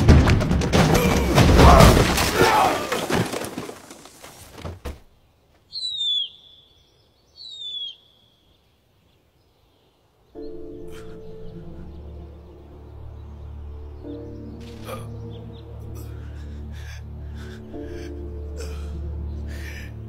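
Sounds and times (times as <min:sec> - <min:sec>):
concrete blocks crashing down: 0:00.0 - 0:05.0
bird chirping: 0:05.0 - 0:16.7.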